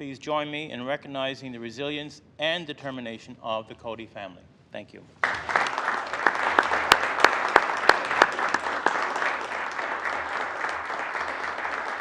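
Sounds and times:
crowd applause: 0:05.2 - 0:12.0.

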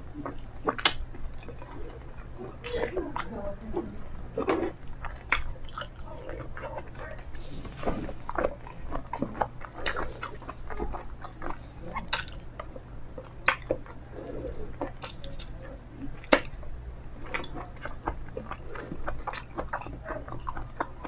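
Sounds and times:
person chewing food: 0:00.0 - 0:21.0
sharp mouth clicks and smacks: 0:00.2 - 0:03.3, 0:04.4 - 0:16.6.

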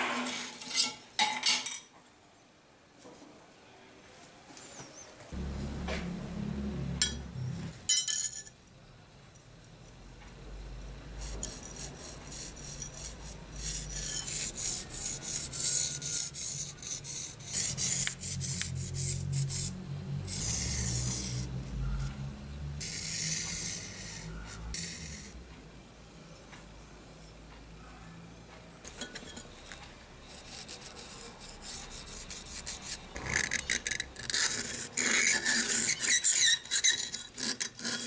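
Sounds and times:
marker scratching on metal: 0:11.2 - 0:22.1, 0:22.8 - 0:25.4, 0:30.2 - 0:38.0.

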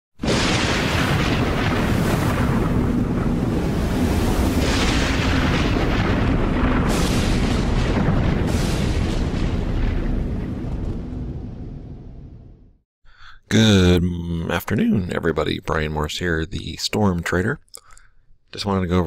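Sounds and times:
deep storm-like rumble: 0:00.3 - 0:12.8.

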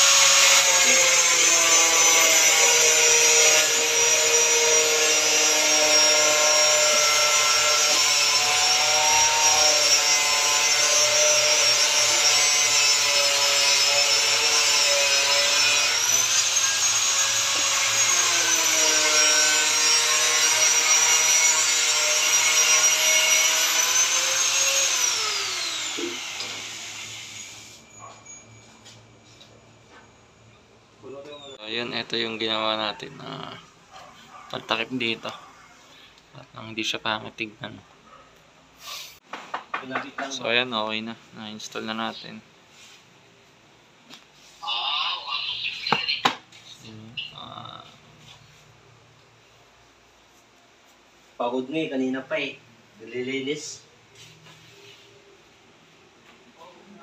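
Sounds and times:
angle grinder cutting plastic panel: 0:00.0 - 0:27.8.

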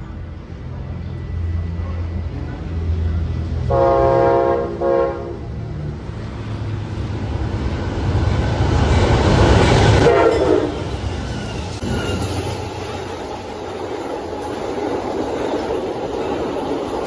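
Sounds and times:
diesel locomotive rumble: 0:00.0 - 0:17.0
passenger cars rolling: 0:00.0 - 0:17.0
rushing wheel noise: 0:00.0 - 0:17.0
train horn: 0:03.7 - 0:05.6, 0:10.0 - 0:10.9.

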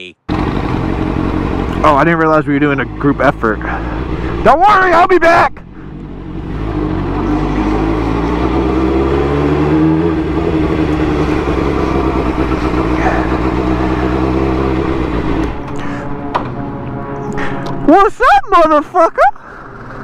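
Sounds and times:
motorcycle engine pulling away: 0:00.3 - 0:04.5, 0:05.8 - 0:15.8, 0:19.4 - 0:20.0.

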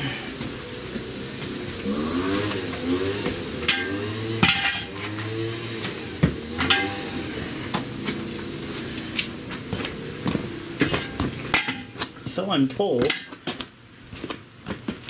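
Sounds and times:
metal clanks and knocks: 0:03.6 - 0:05.0, 0:05.9 - 0:07.2, 0:10.8 - 0:12.3.

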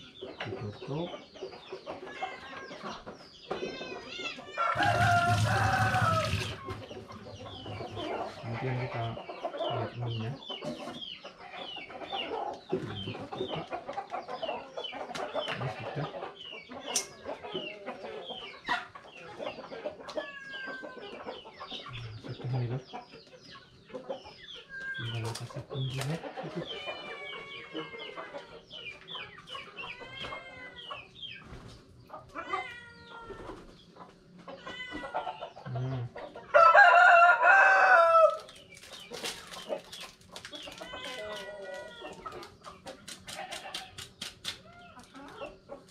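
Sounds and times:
chickens clucking: 0:00.0 - 0:45.9
rooster crowing: 0:04.5 - 0:06.7, 0:36.5 - 0:38.4.

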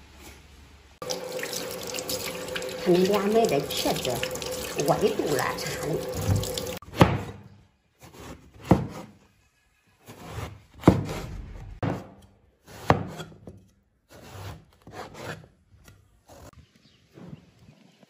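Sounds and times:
running tap water: 0:01.0 - 0:06.8.

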